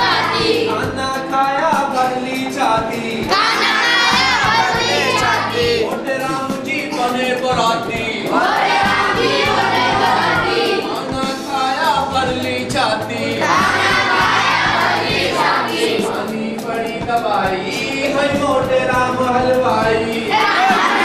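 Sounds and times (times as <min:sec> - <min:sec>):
children singing in unison: 0:00.0 - 0:01.2, 0:03.2 - 0:07.1, 0:07.8 - 0:12.1, 0:13.2 - 0:16.7, 0:19.8 - 0:21.0.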